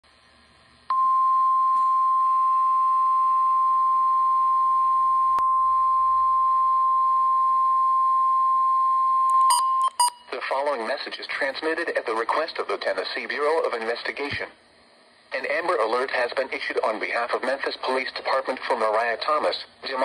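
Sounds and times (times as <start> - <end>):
high-pitched alarm tone: 0.9 - 10.3
short beeps: 0.9 - 10.3.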